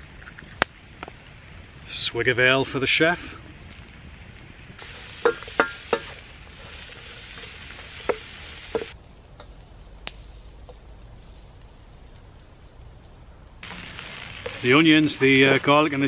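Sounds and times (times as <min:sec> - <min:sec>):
onions sizzling in a frying pan: 0:02.7 - 0:10.5, 0:13.6 - 0:16.0.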